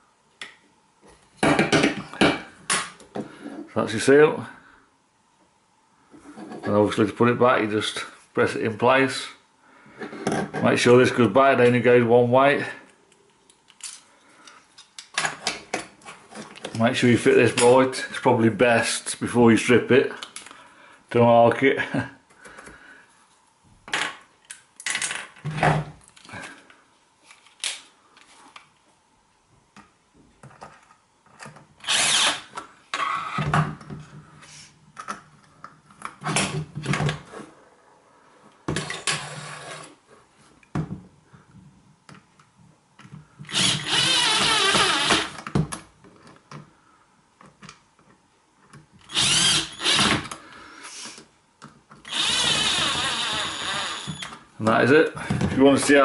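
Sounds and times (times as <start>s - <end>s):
electric screwdriver running: 31.8s - 32.5s, 43.5s - 45.4s, 49.1s - 50.3s, 52.1s - 54.3s.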